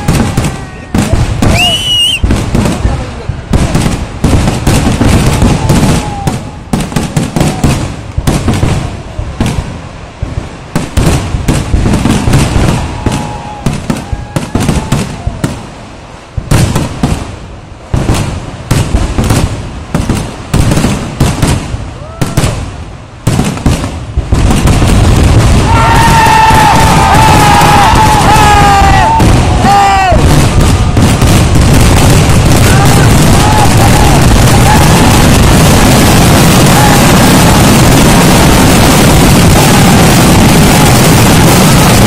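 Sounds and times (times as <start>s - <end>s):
fireworks banging: 0.0s - 42.0s
held whistling tone: 1.5s - 2.3s.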